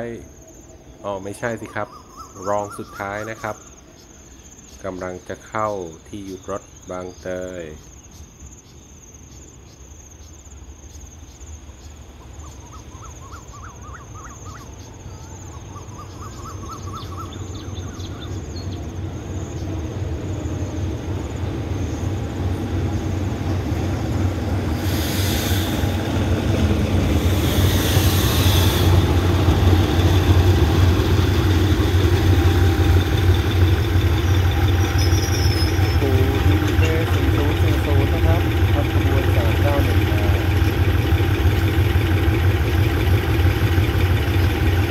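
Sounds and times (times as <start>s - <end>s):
crickets trilling: 0.0s - 44.9s
bird calling: 1.4s - 4.2s, 12.2s - 18.9s, 19.6s - 44.9s
locomotive engine drone: 14.6s - 44.9s
short hisses: 24.7s - 26.3s, 27.1s - 29.9s.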